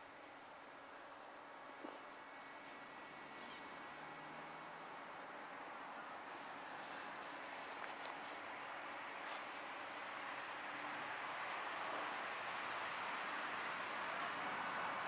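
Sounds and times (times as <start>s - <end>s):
faint outdoor background noise: 0.0s - 15.0s
small birds chirping: 6.2s - 11.0s.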